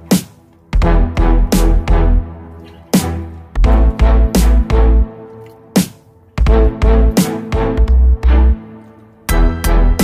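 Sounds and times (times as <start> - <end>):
electronic music with heavy bass: 0.0 - 10.0.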